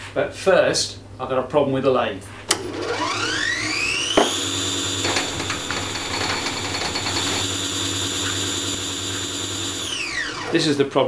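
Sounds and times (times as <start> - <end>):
electric motor whine: 2.6 - 10.8.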